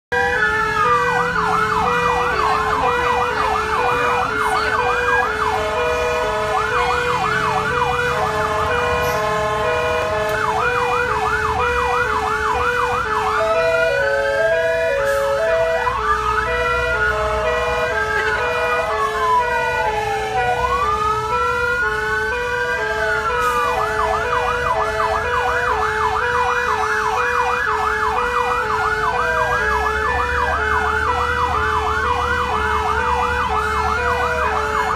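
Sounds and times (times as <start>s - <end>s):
siren wailing: 0.1s - 34.9s
siren yelping fast: 0.1s - 34.9s
two-tone hi-lo siren: 0.1s - 34.9s.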